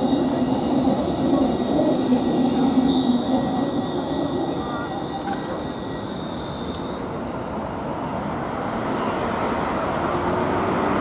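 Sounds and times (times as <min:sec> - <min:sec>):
tram high whine: 0:00.0 - 0:11.0
cars driving through: 0:04.4 - 0:11.0.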